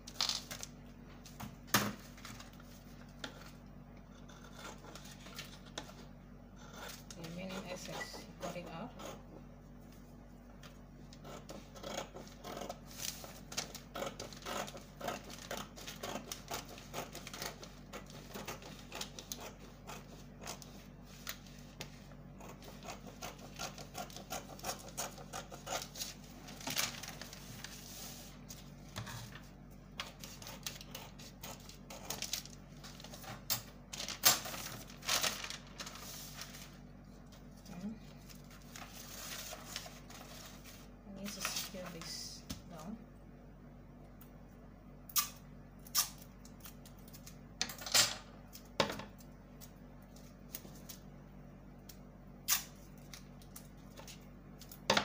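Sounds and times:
low steady hum: 0:00.0 - 0:55.0
scissors snipping paper: 0:11.1 - 0:27.3, 0:30.0 - 0:35.6
paper rustling: 0:25.8 - 0:30.8, 0:31.6 - 0:42.2.

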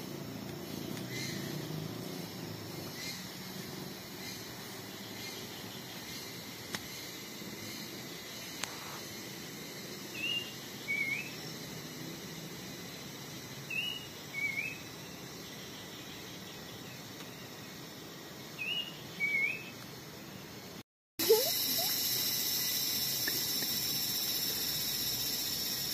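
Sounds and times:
forest background hiss: 0:00.0 - 0:25.9
bird whistled call: 0:10.2 - 0:11.4, 0:13.7 - 0:14.8, 0:18.6 - 0:19.8.

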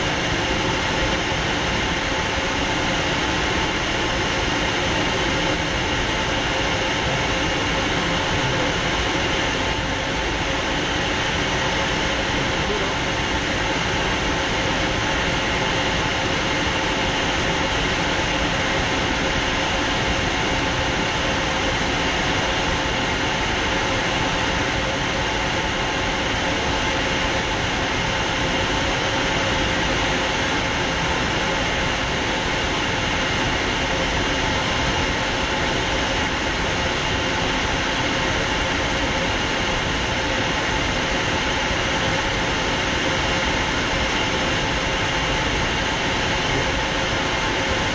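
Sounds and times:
jet cockpit rushing drone: 0:00.0 - 0:47.9.

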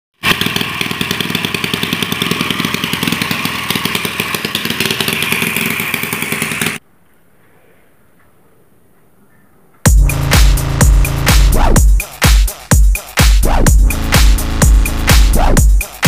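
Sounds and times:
small petrol engine running fast: 0:00.2 - 0:06.8.

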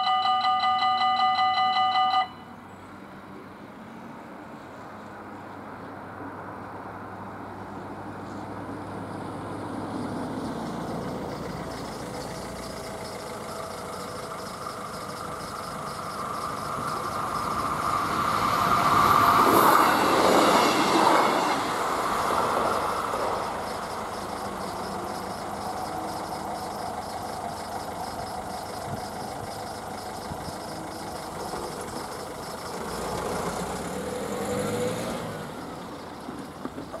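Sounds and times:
level crossing warning bell: 0:00.0 - 0:02.6, 0:11.1 - 0:33.1
electric train passing: 0:00.0 - 0:04.4, 0:08.6 - 0:37.0.

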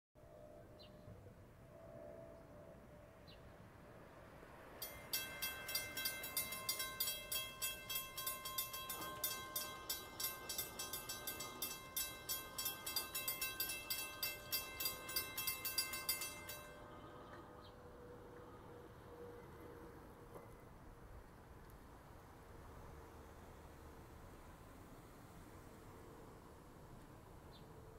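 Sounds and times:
railroad crossing bell ringing: 0:04.6 - 0:19.6.

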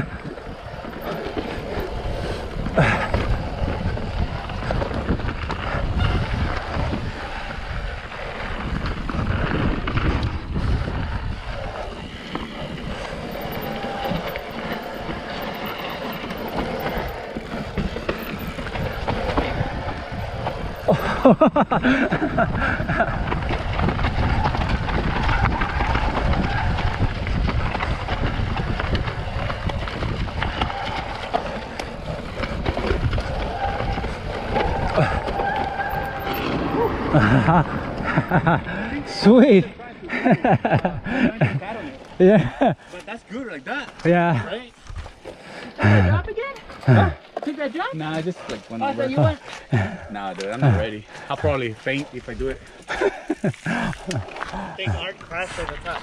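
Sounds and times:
wind rumbling on microphone: 0:00.0 - 0:42.9
tyres on dirt: 0:00.0 - 0:56.0
bike knocks and rattles: 0:00.6 - 0:05.6.

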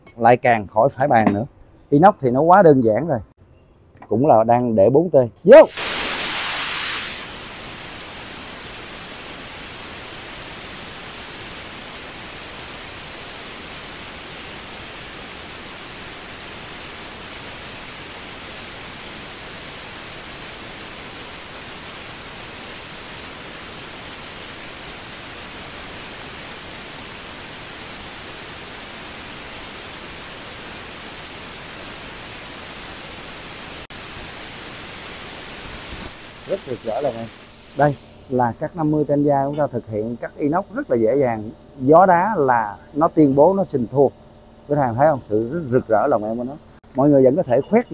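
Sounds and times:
plasma cutter hissing: 0:05.6 - 0:44.1, 0:44.7 - 0:47.9.

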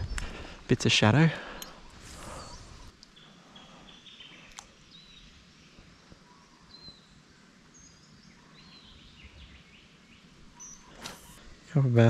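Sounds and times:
high bird chirps: 0:01.7 - 0:05.3
sharp click: 0:10.9 - 0:11.4.

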